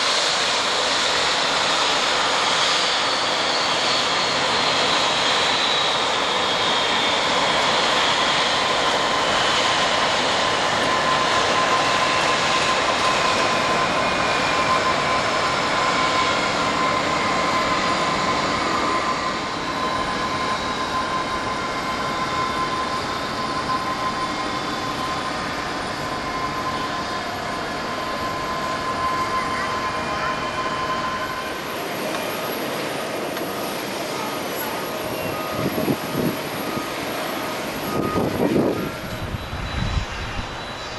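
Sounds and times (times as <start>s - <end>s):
jet engines whining: 0.0s - 40.9s
steady high tone: 16.7s - 40.9s.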